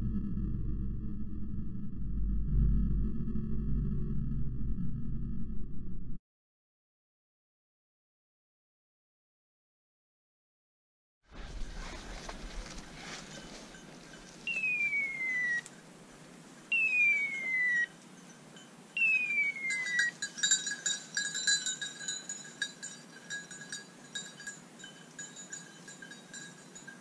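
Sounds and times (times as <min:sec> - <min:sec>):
dog bell jingling: 0:13.0 - 0:14.8, 0:18.1 - 0:27.0
electronic collar whistle calls: 0:14.5 - 0:15.7, 0:16.7 - 0:17.9, 0:19.0 - 0:20.1.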